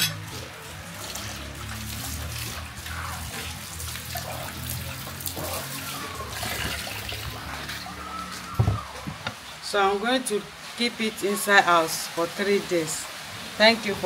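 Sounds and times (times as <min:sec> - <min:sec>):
water running and splashing: 0:00.0 - 0:14.0.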